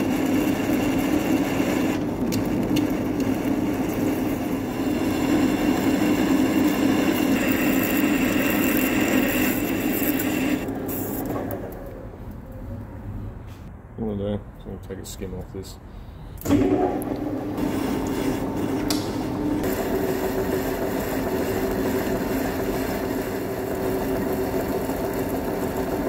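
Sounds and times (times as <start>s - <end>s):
lathe tool cutting metal: 0.0s - 11.6s, 19.6s - 26.0s
lathe spindle running: 0.0s - 12.0s, 16.4s - 26.0s.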